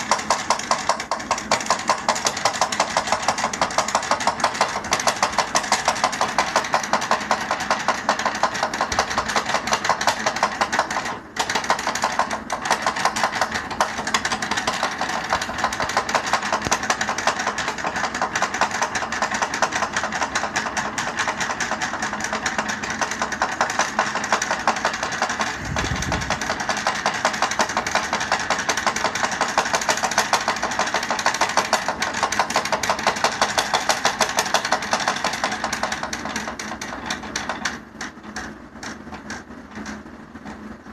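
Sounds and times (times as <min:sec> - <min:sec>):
chair chugging rapidly: 0:00.0 - 0:40.1.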